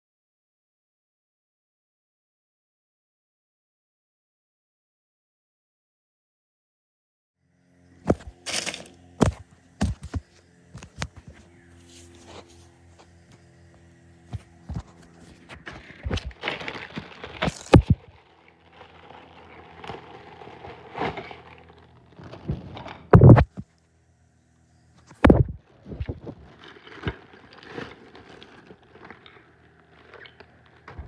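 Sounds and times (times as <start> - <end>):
plastic mailer bag crinkling: 8.1 - 10.2, 14.5 - 22.7, 25.5 - 31.0
heavy thumps: 23.1 - 23.6, 25.2 - 26.2.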